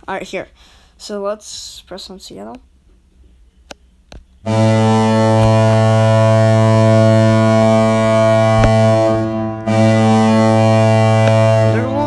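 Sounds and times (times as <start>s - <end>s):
low goal horn blast: 4.5s - 12.0s.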